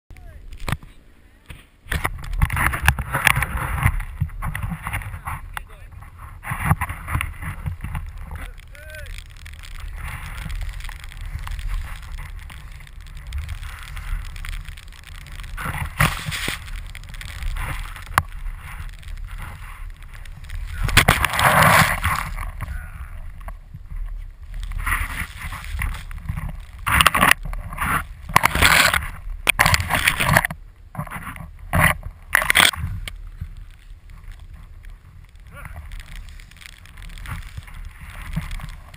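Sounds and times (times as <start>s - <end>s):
wind rumbling on microphone: 0.1s - 38.9s
skis swishing through snow: 1.5s - 38.9s
snow spraying hiss: 7.0s - 26.9s, 32.8s - 38.9s.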